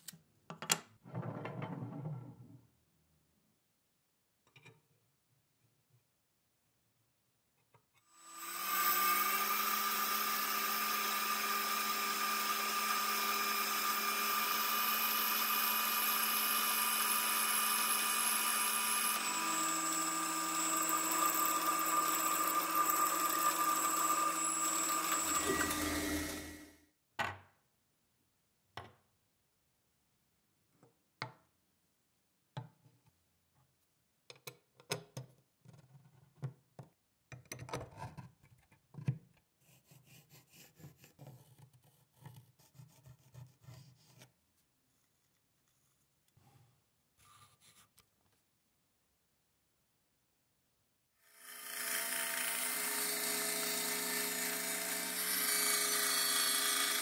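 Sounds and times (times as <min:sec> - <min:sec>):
metal lathe running: 0:17.1 - 0:26.6, 0:51.7 - 0:57.0.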